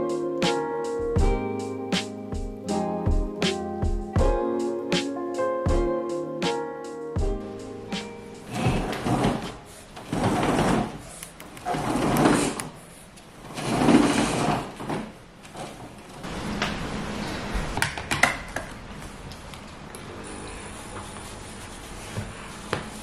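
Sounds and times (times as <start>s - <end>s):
roller shutter rattling up: 8.4s - 11.0s, 11.6s - 12.6s, 13.4s - 18.5s.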